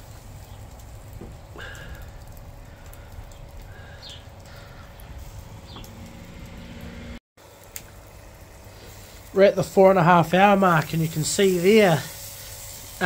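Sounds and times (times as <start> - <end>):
wood fire crackling and popping: 0.0 - 13.0
steady low rumble: 0.2 - 7.2.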